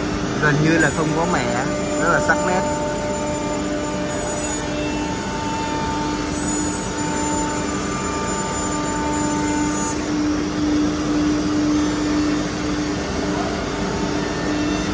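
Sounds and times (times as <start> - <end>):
machinery rushing hum: 0.0 - 14.9
pitched machinery drone: 0.0 - 14.9
higher machine tone: 0.1 - 9.8.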